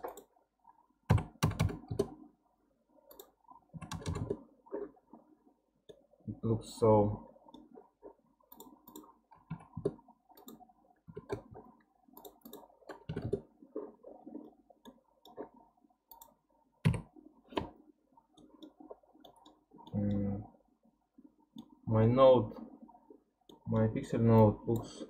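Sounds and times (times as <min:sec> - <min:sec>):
computer mouse clicks: 0:00.0 - 0:00.3, 0:03.1 - 0:04.4, 0:07.5 - 0:13.9, 0:16.1 - 0:17.8, 0:18.4 - 0:20.3.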